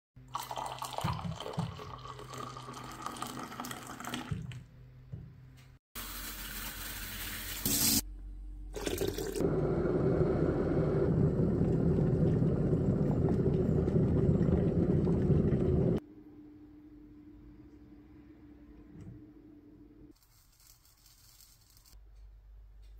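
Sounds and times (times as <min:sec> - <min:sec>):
tap water filling a kettle: 0:00.4 - 0:04.6.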